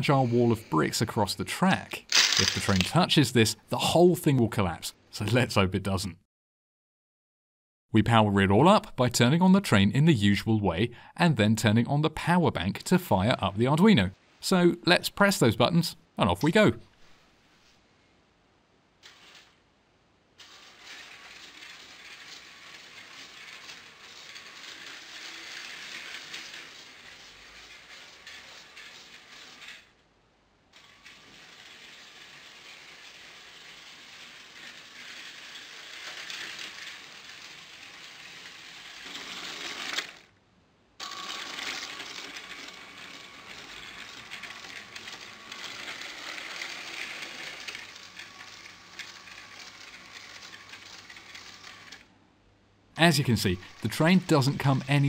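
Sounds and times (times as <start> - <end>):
toy train motor whirring: 0.0 - 1.1, 1.9 - 3.0, 19.0 - 19.6, 20.4 - 30.0, 30.7 - 40.3, 41.0 - 52.1, 53.0 - 55.0.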